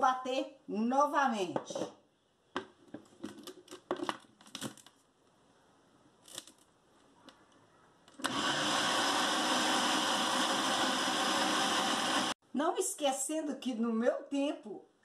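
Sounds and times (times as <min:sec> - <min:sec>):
blender motor running: 0:08.2 - 0:12.4.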